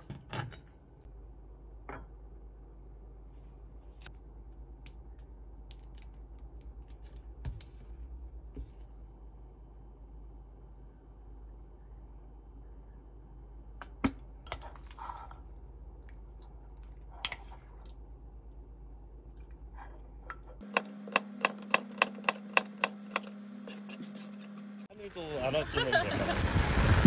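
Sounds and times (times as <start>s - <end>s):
wooden spoon scraping ceramic bowl: 19.8s - 24.8s
knife chopping on cutting board: 20.6s - 23.3s.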